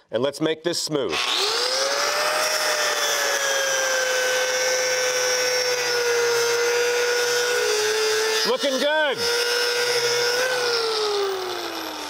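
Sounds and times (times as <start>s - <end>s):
angle grinder grinding steel: 1.1s - 12.0s.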